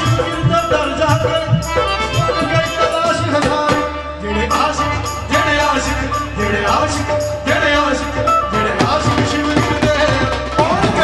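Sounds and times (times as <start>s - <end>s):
hand drums: 0.0s - 4.0s, 8.3s - 11.0s
keyboard: 0.0s - 11.0s.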